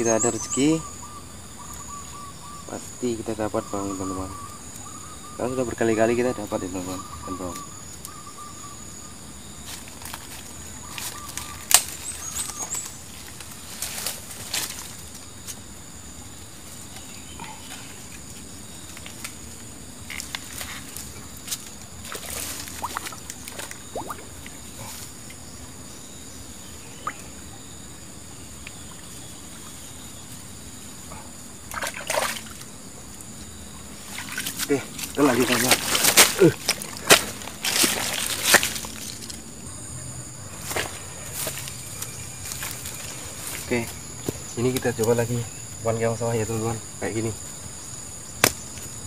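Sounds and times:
rustling: 0:09.6 - 0:15.6, 0:34.0 - 0:39.4
shallow water splashing: 0:22.0 - 0:25.4, 0:31.7 - 0:32.7, 0:33.7 - 0:39.3.

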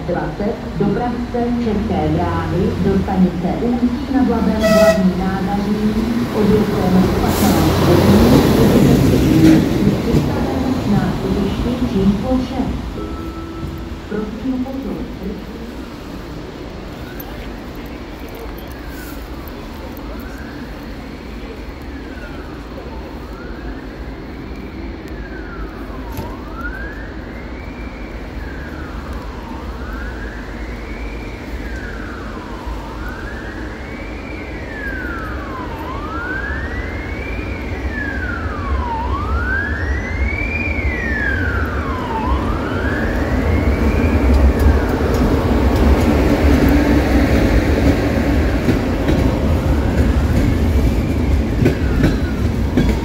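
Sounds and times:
train rumbling: 0:00.0 - 0:53.0
wailing siren: 0:18.3 - 0:53.0.

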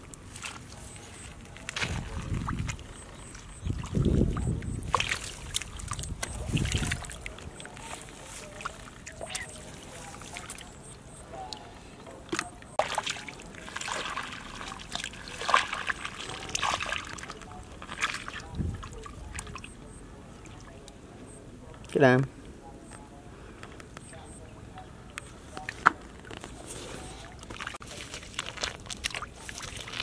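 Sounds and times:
hands sloshing in muddy water: 0:00.2 - 0:10.9, 0:12.3 - 0:19.7, 0:25.6 - 0:30.0.

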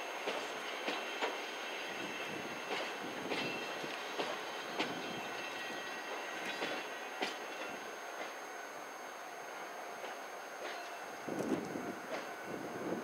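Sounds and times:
train wheels clacking over rail joints: 0:00.0 - 0:08.4, 0:10.0 - 0:12.3
wind noise on microphone: 0:11.2 - 0:13.0.

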